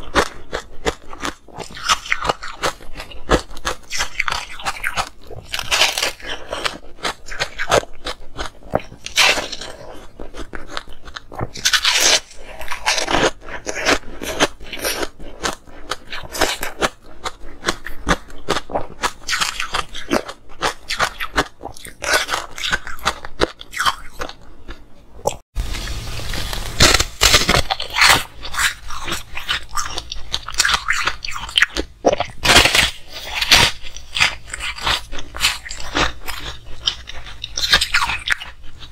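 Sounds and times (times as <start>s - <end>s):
crunching ice chunks: 26.8s - 31.4s, 32.2s - 37.0s.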